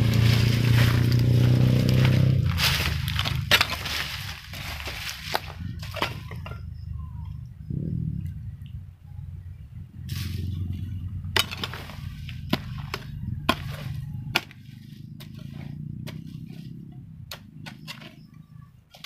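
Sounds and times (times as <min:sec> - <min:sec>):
hoe chopping into soil: 0:00.0 - 0:06.5, 0:11.4 - 0:16.7.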